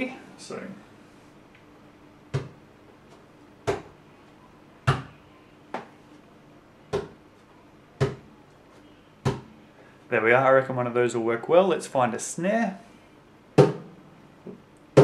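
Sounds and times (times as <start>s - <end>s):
knocks on guitar body: 13.6s - 13.9s.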